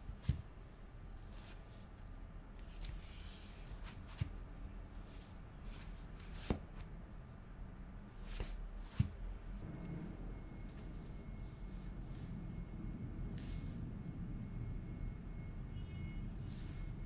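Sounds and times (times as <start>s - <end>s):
soft rubbing of tablet case: 2.6s - 6.6s.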